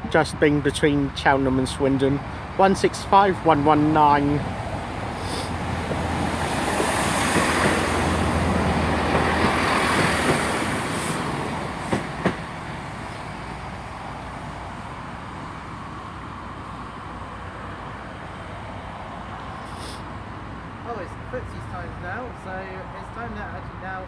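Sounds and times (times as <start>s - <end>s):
diesel train engine hum: 0.0s - 24.0s
train wheel noise: 4.4s - 15.1s.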